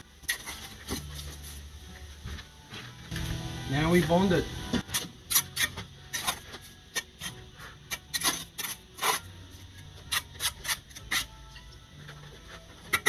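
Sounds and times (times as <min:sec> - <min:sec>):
trowel scraping bricks and mortar: 0:00.2 - 0:01.5, 0:04.8 - 0:13.0.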